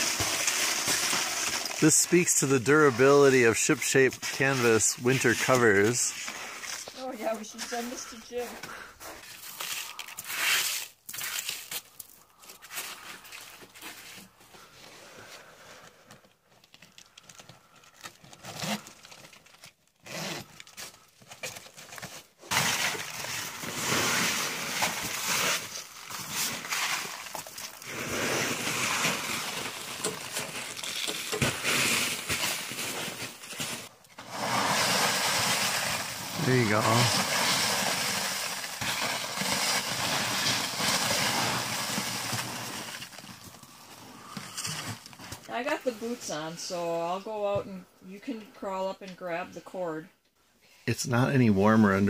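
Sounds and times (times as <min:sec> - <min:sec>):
canvas cover rustling and scraping: 0:22.0 - 0:46.5.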